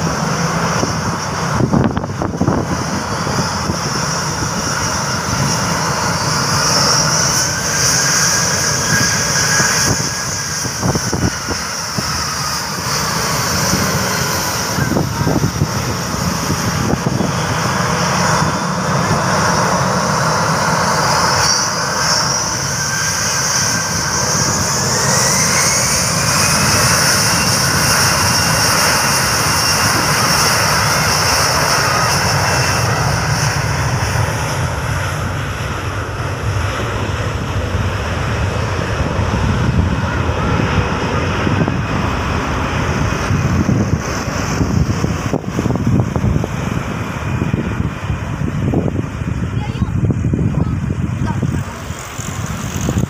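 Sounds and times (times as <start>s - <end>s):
jet engines whining: 0.0s - 53.0s.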